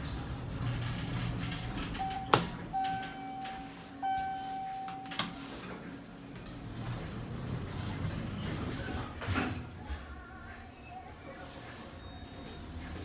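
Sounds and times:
elevator clicks: 0:00.9 - 0:05.4
elevator arrival chime tones: 0:01.9 - 0:05.6.

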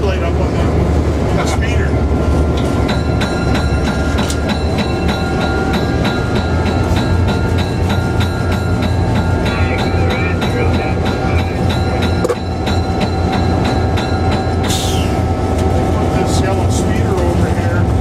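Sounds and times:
diesel locomotive engine running: 0:00.0 - 0:18.0
locomotive bell ringing: 0:02.3 - 0:15.4.

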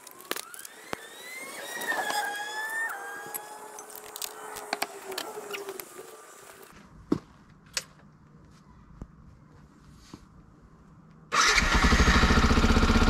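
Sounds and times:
engine accelerating through gears: 0:11.4 - 0:13.0.

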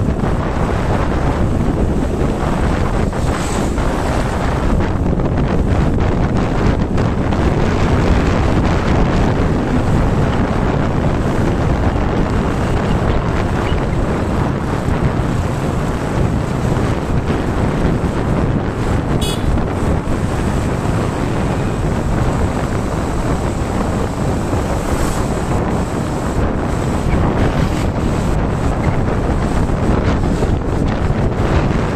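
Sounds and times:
road noise: 0:00.0 - 0:31.9
wind buffeting microphone: 0:00.0 - 0:31.9.

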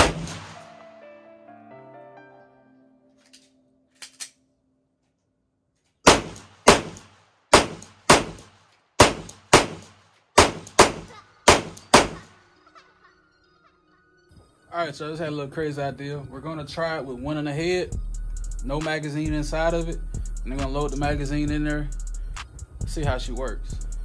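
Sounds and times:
pistol shots: 0:00.0 - 0:00.7, 0:06.0 - 0:12.3.

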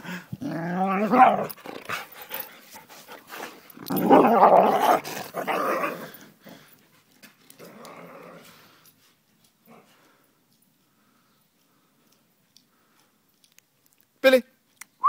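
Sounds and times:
dogs growling in rough play: 0:00.0 - 0:02.5, 0:03.4 - 0:06.7, 0:07.5 - 0:08.8.

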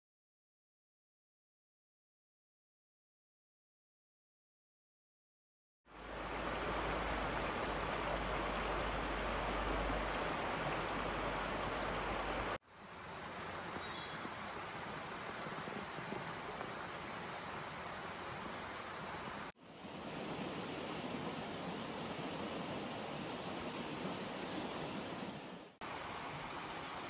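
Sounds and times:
rocky stream rushing: 0:05.9 - 0:27.0.

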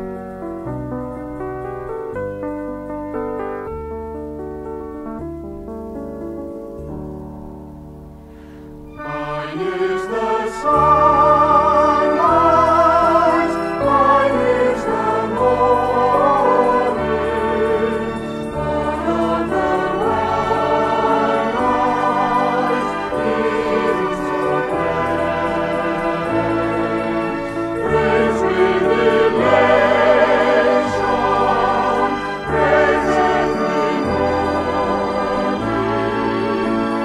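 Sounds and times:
instrumental accompaniment: 0:00.0 - 0:37.0
vocal group singing in harmony: 0:08.9 - 0:37.0.

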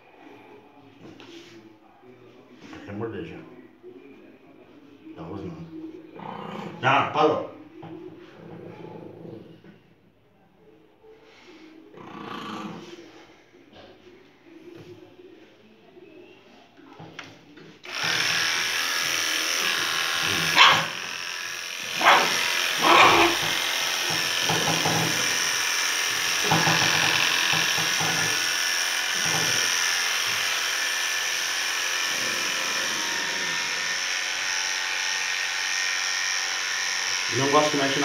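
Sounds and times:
electric clipper running: 0:17.8 - 0:38.0
dog barking: 0:20.5 - 0:20.9, 0:22.0 - 0:23.4.

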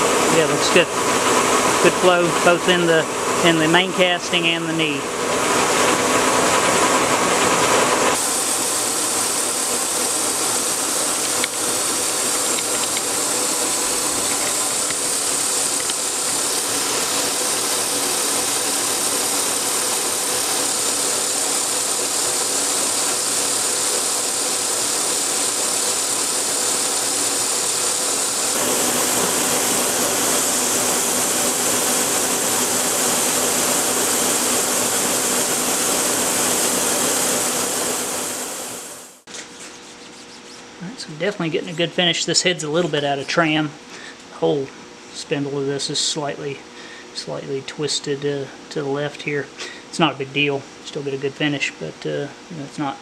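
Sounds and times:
milling machine whirring: 0:00.0 - 0:42.0
cutter hissing through steel: 0:07.4 - 0:39.3.

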